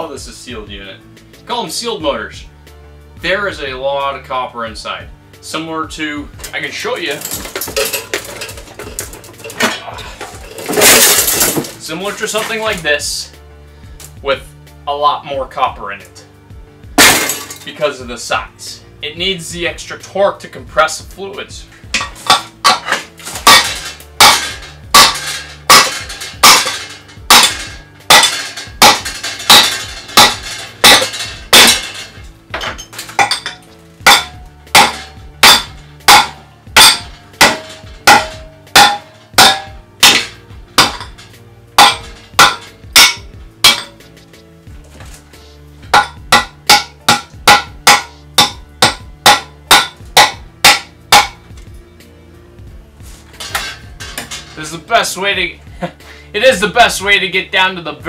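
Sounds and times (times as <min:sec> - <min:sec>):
background music with bass: 0:00.0 - 0:58.0
hatchet clanking on steel: 0:06.4 - 0:12.7, 0:21.9 - 0:44.0, 0:45.9 - 0:51.5, 0:53.4 - 0:54.8.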